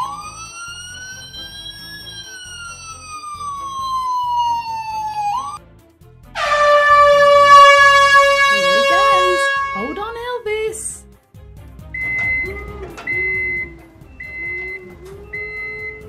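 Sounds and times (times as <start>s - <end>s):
rising and falling siren tone: 0.0s - 5.6s, 6.4s - 10.0s, 12.0s - 16.0s
toy horn blast: 6.4s - 10.4s
soft background beat: 11.3s - 16.0s.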